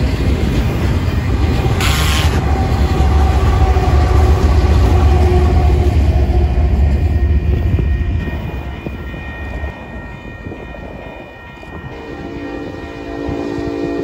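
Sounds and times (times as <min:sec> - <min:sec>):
diesel locomotive rumbling past: 0:00.0 - 0:14.0
train air horn chord: 0:01.7 - 0:02.5, 0:11.8 - 0:14.0.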